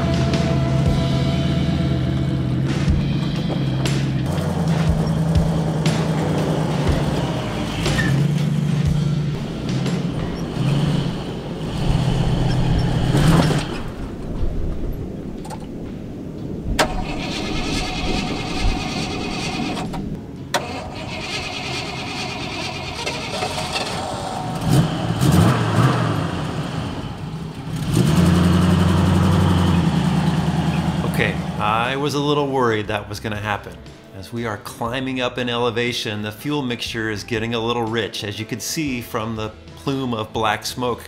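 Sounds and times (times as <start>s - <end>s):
engine running steadily: 0.0s - 14.4s, 16.4s - 32.0s
engine dying: 0.0s - 37.8s
engine cranking on starter: 16.8s - 31.1s.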